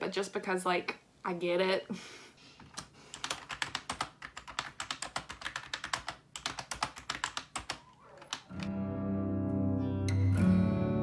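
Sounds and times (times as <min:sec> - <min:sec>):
typing on computer keyboard: 0:02.7 - 0:08.7.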